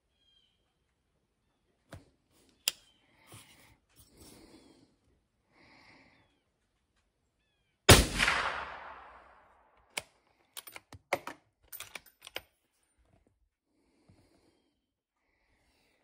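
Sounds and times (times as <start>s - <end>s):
suppressed rifle shot echoing: 7.9s - 9.5s.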